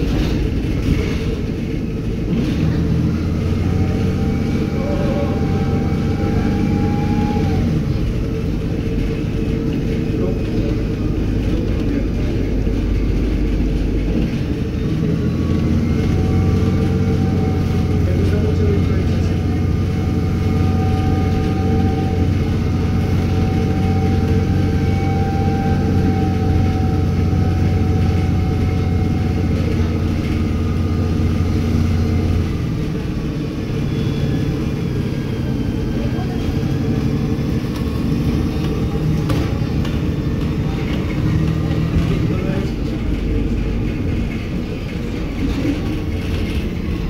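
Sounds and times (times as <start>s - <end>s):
bus diesel engine pulling away: 0.0s - 47.0s
high engine whine: 0.0s - 47.0s.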